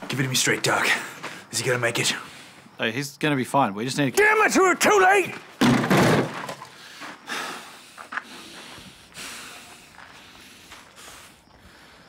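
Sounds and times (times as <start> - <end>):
man breathing hard: 6.7 - 12.0.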